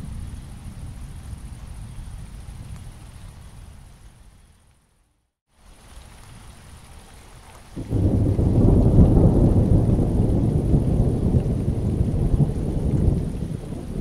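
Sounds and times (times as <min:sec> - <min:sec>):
rain falling steadily: 0:00.0 - 0:14.0
deep rolling thunder: 0:07.8 - 0:14.0.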